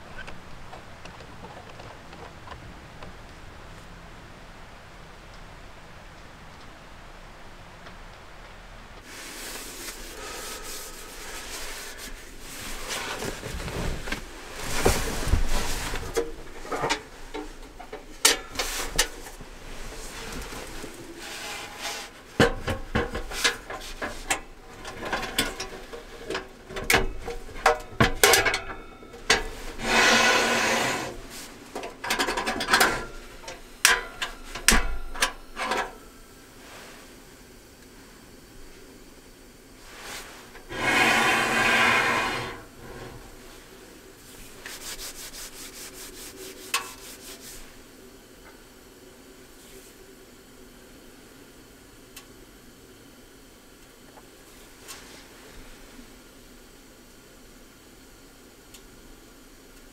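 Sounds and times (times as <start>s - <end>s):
metal scraping on wood: 29.2s - 31.5s, 40.6s - 43.4s.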